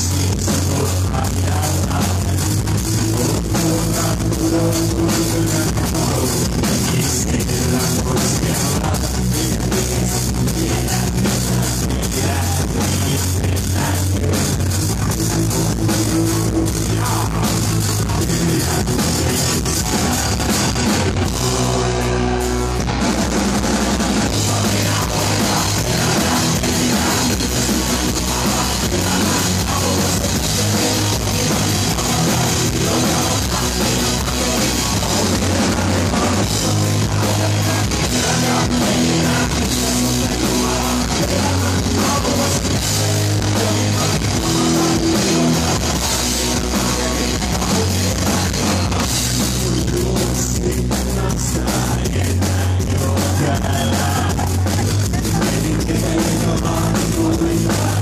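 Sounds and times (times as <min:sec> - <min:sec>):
distorted electric guitar: 0:00.0 - 0:58.0
drum kit: 0:00.0 - 0:58.0.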